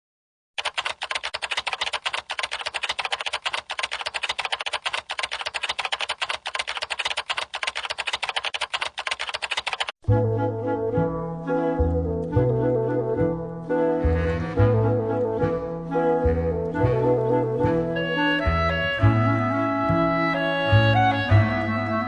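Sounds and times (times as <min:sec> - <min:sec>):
keyboard keystroke clicks: 0:00.6 - 0:09.9.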